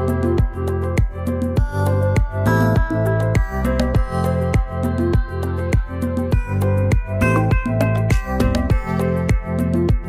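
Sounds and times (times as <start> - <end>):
electronic music with steady beat: 0.0 - 10.0.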